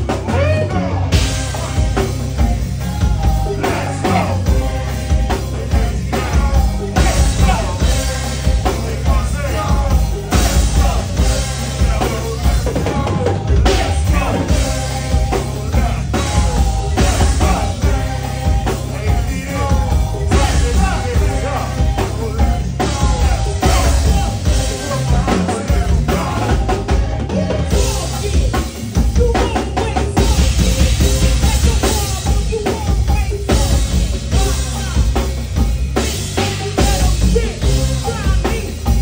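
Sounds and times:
deep bass notes: 0:00.0 - 0:39.0
drum kit beat: 0:00.0 - 0:39.0
keyboard: 0:00.0 - 0:39.0
live band playing: 0:00.0 - 0:39.0.

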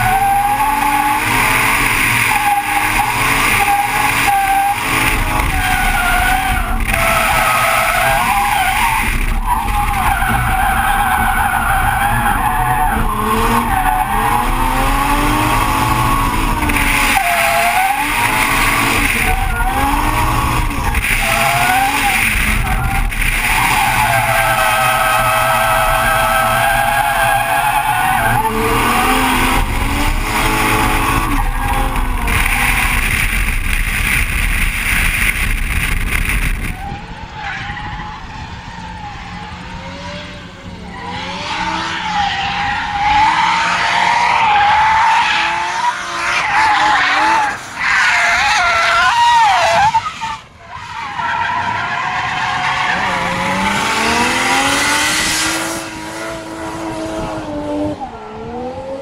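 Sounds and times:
car engine revving: 0:00.0 - 0:36.9, 0:51.5 - 0:59.0
tyres squealing and skidding: 0:00.0 - 0:57.1.

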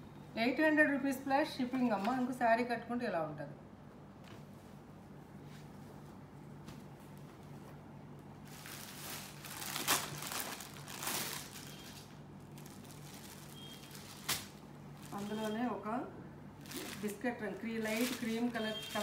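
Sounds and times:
plastic bag crinkling: 0:08.4 - 0:15.7, 0:16.6 - 0:19.0.

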